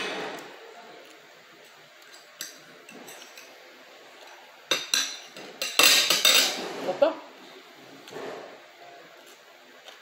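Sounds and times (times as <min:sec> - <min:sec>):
cutlery scraping glass plate: 0:04.7 - 0:07.0.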